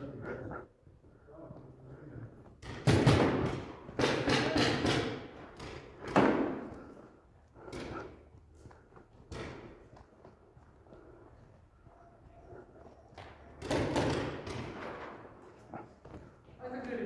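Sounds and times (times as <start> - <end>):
paintball markers firing with echo: 2.6 - 7.0, 13.2 - 15.4.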